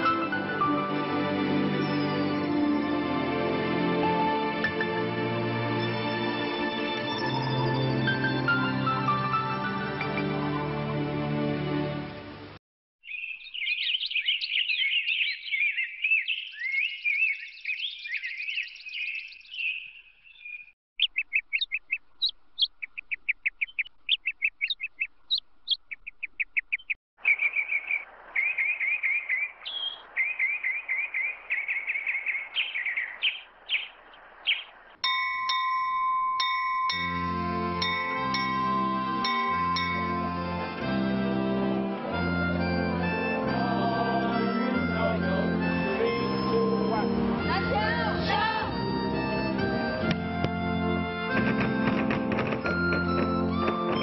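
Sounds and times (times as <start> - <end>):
birds chirping and singing: 13.0 - 35.0
hanging bell ringing: 35.0 - 40.8.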